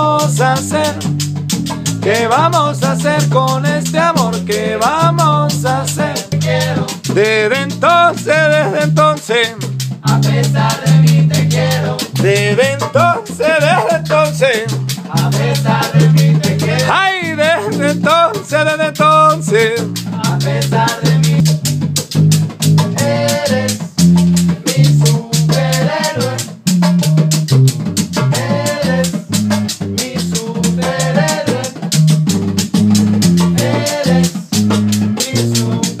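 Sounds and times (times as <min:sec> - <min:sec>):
electric bass line: 0:00.0 - 0:36.0
hand drums and percussion: 0:00.0 - 0:36.0
voices singing chorus phrases: 0:04.4 - 0:21.5, 0:22.9 - 0:23.9, 0:24.6 - 0:26.6, 0:28.3 - 0:29.2, 0:30.0 - 0:31.8, 0:33.5 - 0:34.5.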